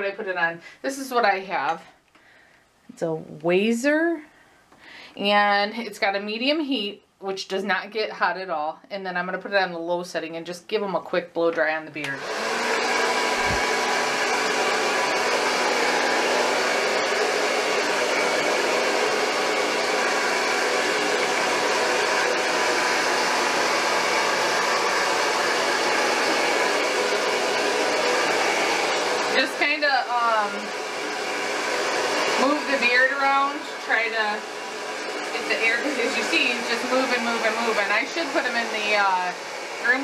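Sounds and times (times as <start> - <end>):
hair dryer blowing: 0.0 - 0.4, 11.6 - 40.0.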